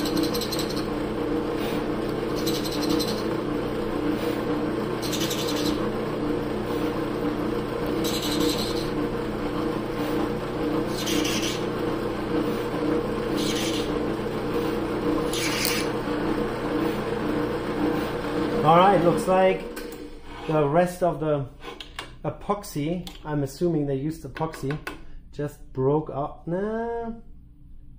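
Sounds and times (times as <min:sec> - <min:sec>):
drill bit scraping: 0:00.0 - 0:20.7
drill press motor humming: 0:00.0 - 0:20.7.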